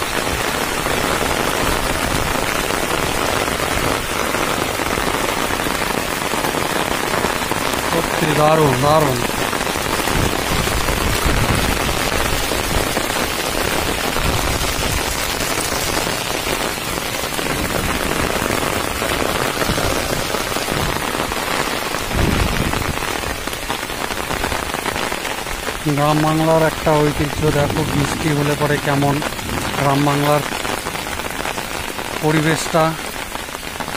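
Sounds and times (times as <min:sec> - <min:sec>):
heavy rain pouring: 0:00.0 - 0:33.9.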